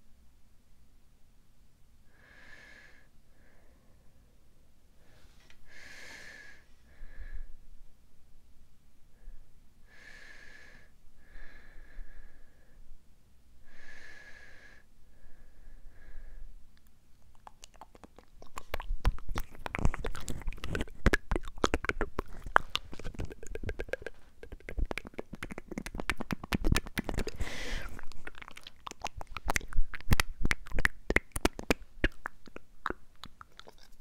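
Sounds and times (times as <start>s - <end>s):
breathy hiss: 9.8s - 12.8s, 27.3s - 28.0s
wet mouth clicks and smacks: 16.8s - 34.0s.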